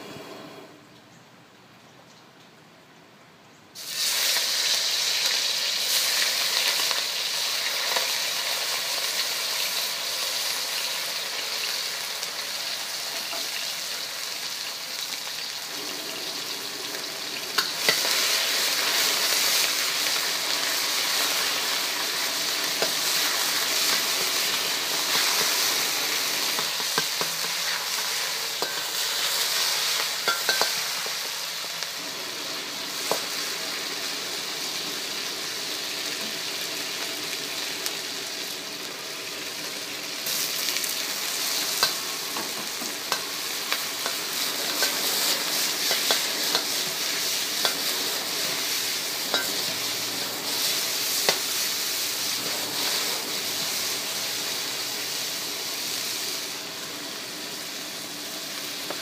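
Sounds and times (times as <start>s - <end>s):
chicken sizzling in a wok: 3.8s - 59.0s
metal spatula clicking on wok: 30.2s - 30.9s.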